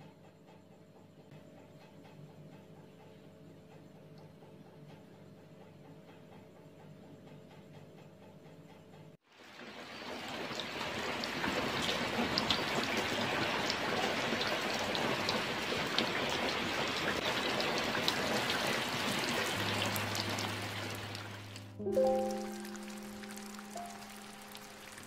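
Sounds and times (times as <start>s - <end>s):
steady rain falling: 9.3s - 25.0s.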